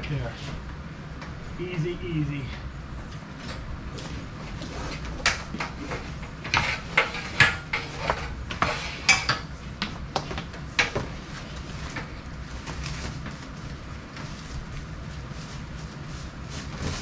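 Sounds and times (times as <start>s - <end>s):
steady low hum: 0.0s - 17.0s
electrical wire clicking and scraping: 3.1s - 17.0s.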